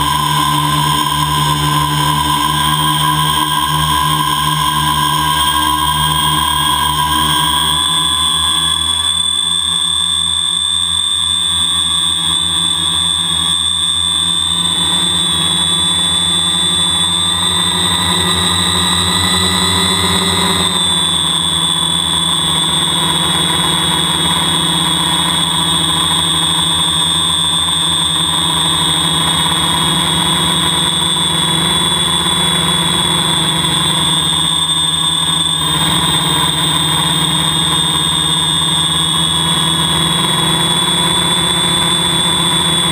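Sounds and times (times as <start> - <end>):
drone motors whining: 0.0 - 42.9.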